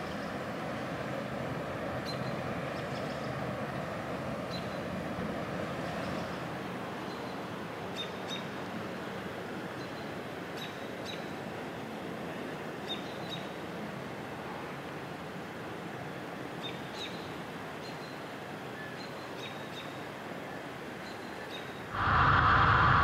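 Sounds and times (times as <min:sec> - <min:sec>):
steady noise: 0:22.0 - 0:23.0.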